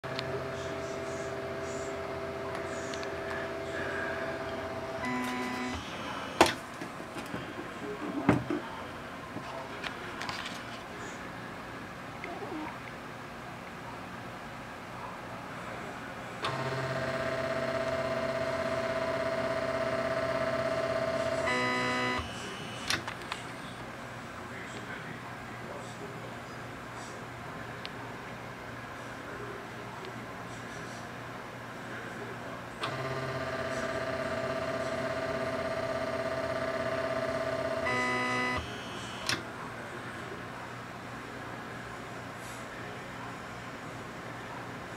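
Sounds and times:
printer motor whine: 0.1s - 6.6s, 16.4s - 23.1s, 32.8s - 39.4s
stepper motor whining: 32.8s - 39.4s.

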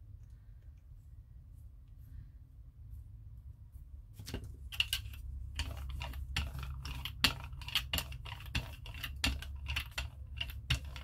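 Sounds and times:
brayer rolling paint: 4.1s - 11.0s.

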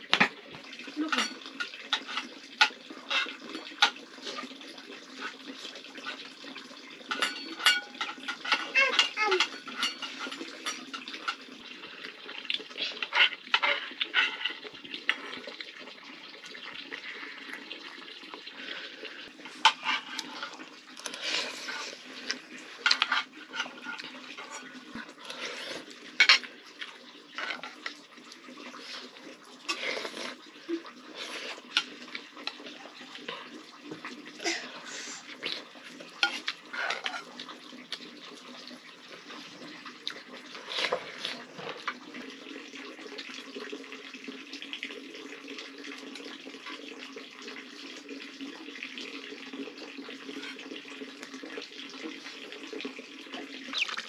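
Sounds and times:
slurping and chewing: 7.2s - 32.7s, 34.8s - 38.1s, 39.1s - 42.2s, 53.4s - 54.0s.

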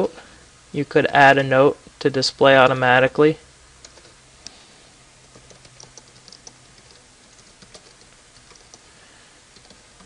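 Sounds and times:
computer keyboard typing: 3.8s - 4.2s, 5.3s - 8.9s, 9.5s - 10.0s.

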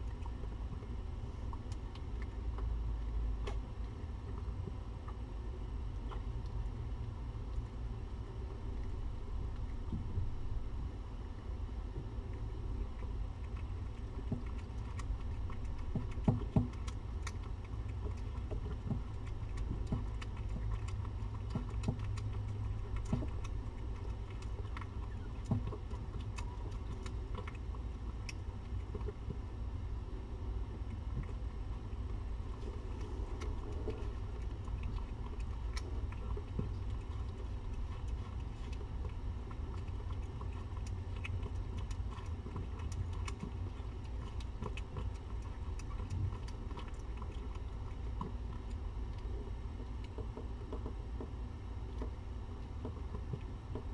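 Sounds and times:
steady low hum: 0.0s - 53.9s
cat eating from metal bowl: 12.0s - 53.9s.

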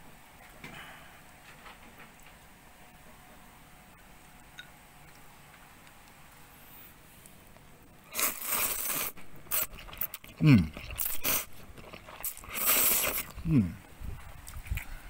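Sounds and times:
noodles being slurped: 8.1s - 13.5s
person humming: 10.4s - 10.8s, 13.2s - 13.9s.

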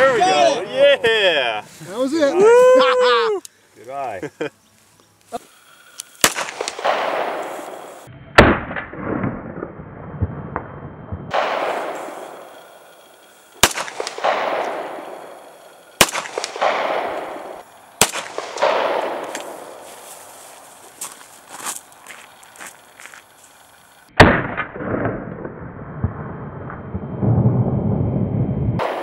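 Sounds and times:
pistol shots echoing: 6.2s - 9.2s, 11.3s - 12.6s, 13.6s - 19.8s.

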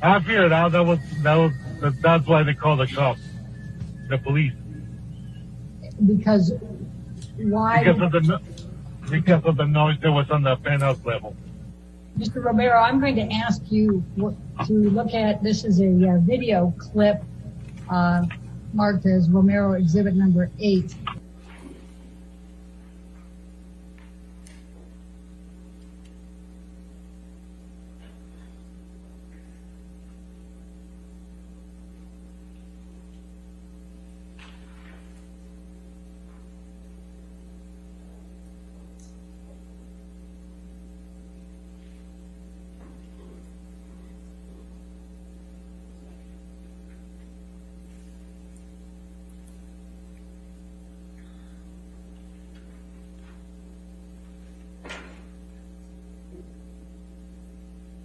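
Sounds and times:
electrical mains hum: 0.0s - 58.0s.

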